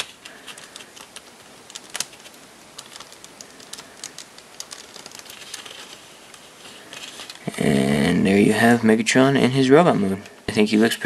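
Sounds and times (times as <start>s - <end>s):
plastic bricks clicking: 0.0s - 6.0s.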